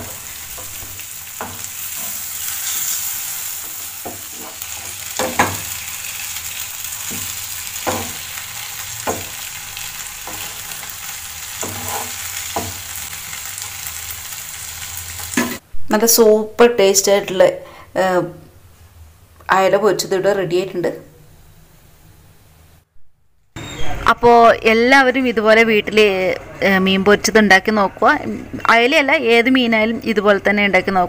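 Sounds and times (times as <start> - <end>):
spatula scraping and knocking pan: 0.0 - 6.0, 7.0 - 9.6, 10.2 - 13.1
fish sizzling in a frying pan: 0.0 - 15.6.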